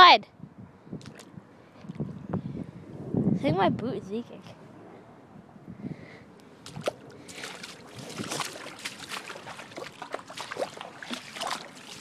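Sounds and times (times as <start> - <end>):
boots splashing through water: 6.6 - 12.0.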